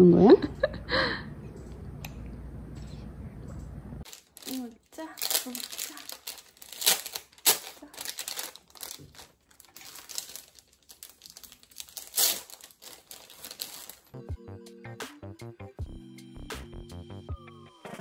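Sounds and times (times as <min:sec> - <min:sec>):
fabric carrier rustling: 0:05.2 - 0:14.2.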